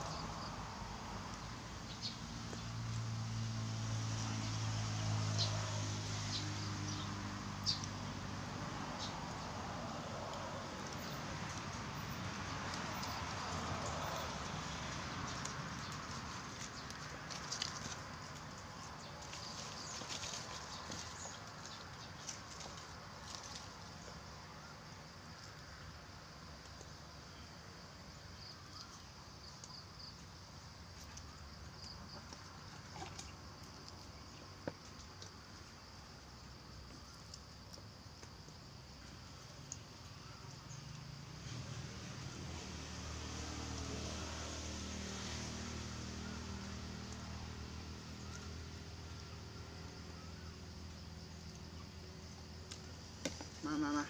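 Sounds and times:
high insect drone: 0:30.8 - 0:54.0.

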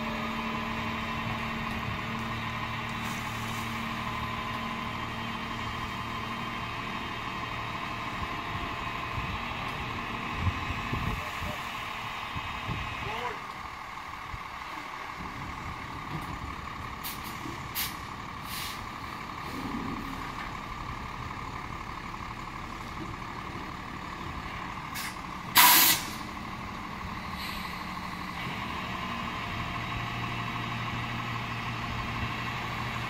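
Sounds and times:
dump truck engine running: 0:00.0 - 0:33.0
air hissing burst: 0:17.0 - 0:18.8, 0:25.0 - 0:26.2.

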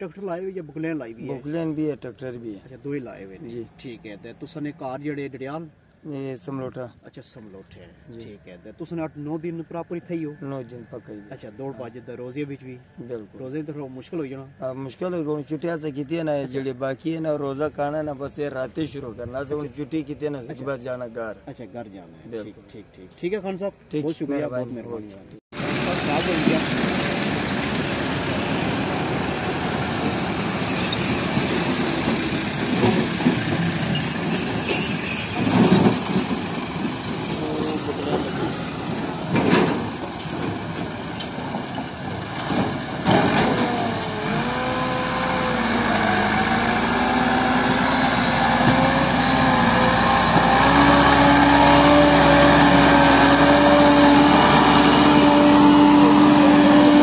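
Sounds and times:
tractor engine running rough: 0:25.6 - 0:57.0.

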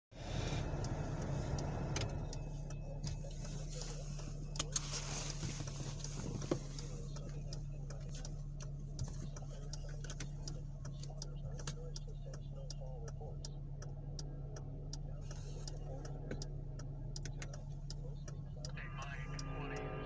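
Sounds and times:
car engine and road hum: 0:00.1 - 0:20.0
crossing warning bells ringing: 0:18.8 - 0:20.0.

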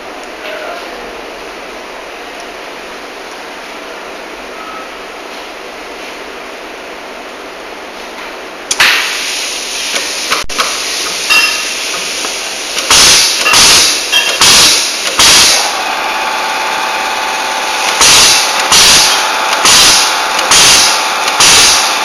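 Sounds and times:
short loud air blasts: 0:08.7 - 0:12.2, 0:12.8 - 0:15.8, 0:17.6 - 0:22.0
steady air hiss: 0:09.0 - 0:15.7
steady machine whine: 0:09.2 - 0:22.0.

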